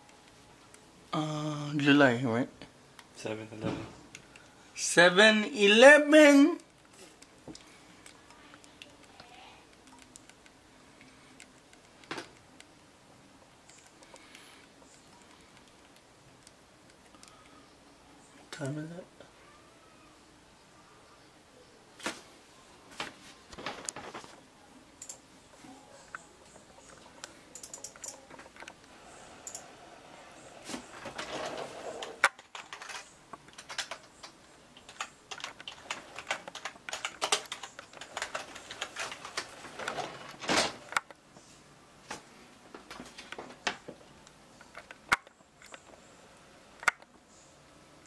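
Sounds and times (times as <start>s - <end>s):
rustling handling noise: 22.0s - 24.5s, 30.4s - 46.0s.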